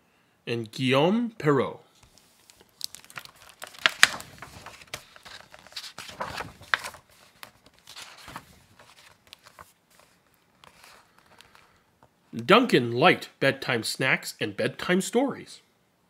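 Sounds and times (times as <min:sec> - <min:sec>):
book pages turning: 0:02.0 - 0:11.8.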